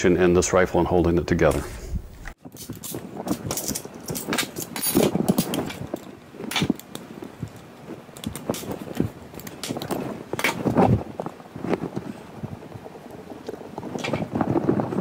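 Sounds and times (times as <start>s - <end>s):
rifle metallic clicks and rattles: 2.5s - 10.8s.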